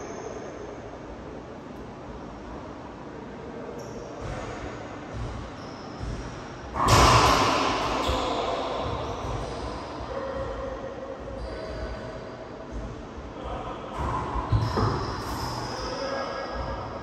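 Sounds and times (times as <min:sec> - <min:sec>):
loud echoing ball smack: 0:05.1 - 0:09.7.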